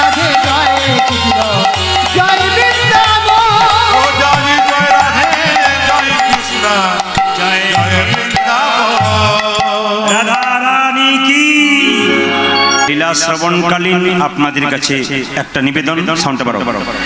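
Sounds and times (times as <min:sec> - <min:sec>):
hand drum beating: 0:00.0 - 0:09.8
wavering melody: 0:00.0 - 0:14.5.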